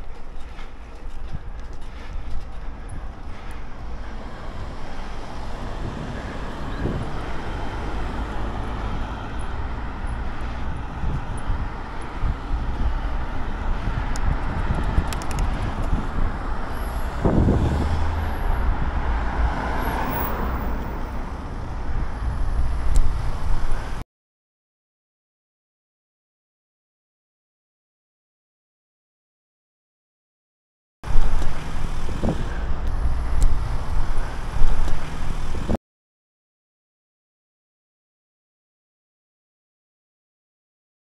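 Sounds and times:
bike road noise: 0:00.0 - 0:24.0, 0:31.1 - 0:35.8
low wind buffet: 0:00.0 - 0:24.0, 0:31.1 - 0:35.8
wind on microphone: 0:00.0 - 0:24.0, 0:31.1 - 0:35.8.

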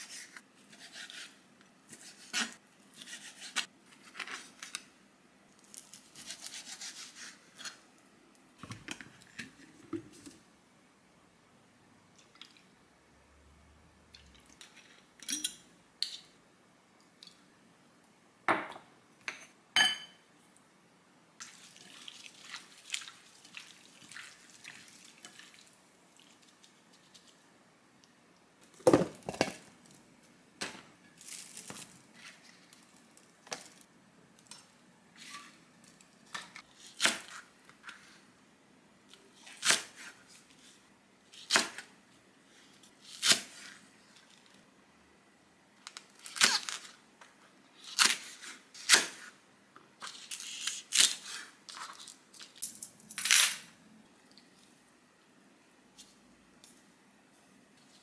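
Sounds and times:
spoon clinking against glass bowl: 0:19.8 - 0:20.2.

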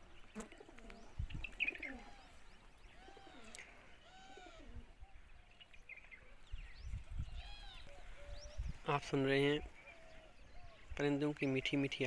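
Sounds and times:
pigeons cooing: 0:00.0 - 0:05.2, 0:07.2 - 0:08.8
birds chirping: 0:00.0 - 0:12.0
short arched bird calls: 0:00.1 - 0:08.7.

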